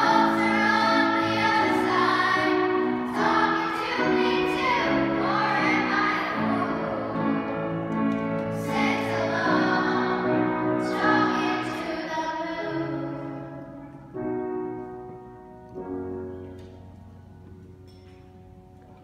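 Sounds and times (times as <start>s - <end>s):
children's choir singing: 0.0s - 14.0s
piano: 0.0s - 19.0s.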